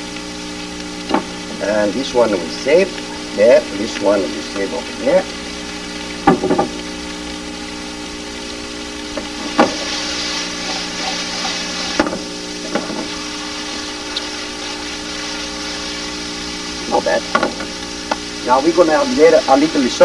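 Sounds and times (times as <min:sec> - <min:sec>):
electrical tape hum: 0:00.0 - 0:20.0
food sizzling in frying pans: 0:00.0 - 0:20.0.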